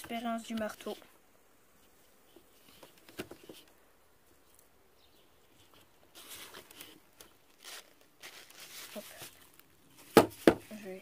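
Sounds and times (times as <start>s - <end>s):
rustling: 0.0s - 11.0s.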